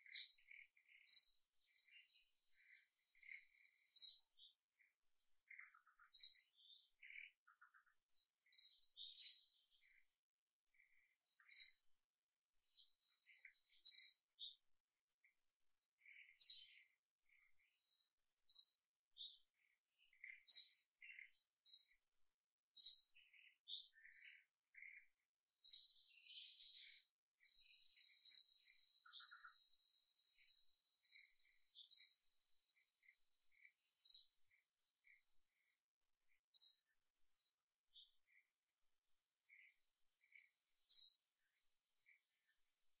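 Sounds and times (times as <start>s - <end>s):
birds chirping: 0.0s - 43.0s.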